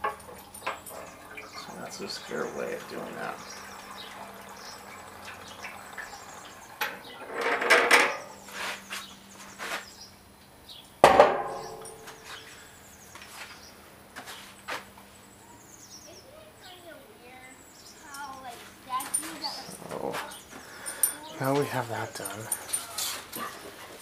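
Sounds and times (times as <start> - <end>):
metal gas can clanking: 0.0 - 8.5, 11.0 - 12.5.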